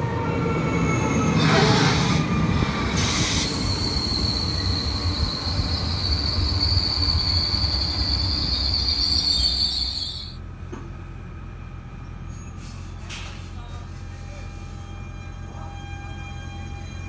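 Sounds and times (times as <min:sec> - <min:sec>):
train rumbling past: 0:00.0 - 0:17.0
high-pitched wheel squeal: 0:03.3 - 0:10.4.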